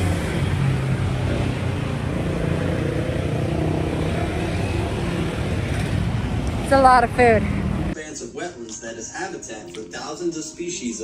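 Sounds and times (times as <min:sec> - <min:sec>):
road traffic noise: 0:00.0 - 0:08.0
vehicle engine humming: 0:00.0 - 0:08.0.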